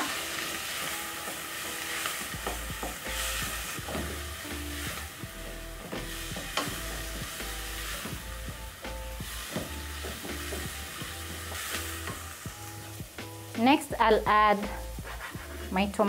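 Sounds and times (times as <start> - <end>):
onion sizzling in hot oil: 0.0 - 16.0
soft background music: 0.0 - 16.0
wooden spoon stirring and scraping: 14.7 - 16.0.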